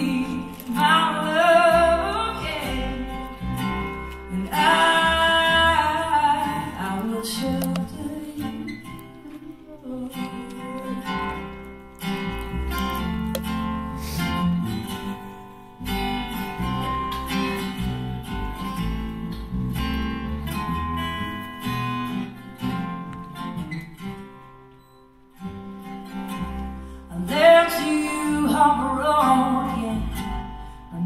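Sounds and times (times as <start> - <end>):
strummed acoustic guitar: 0.0 - 31.0
upright bass playing: 1.6 - 8.2, 11.2 - 24.0.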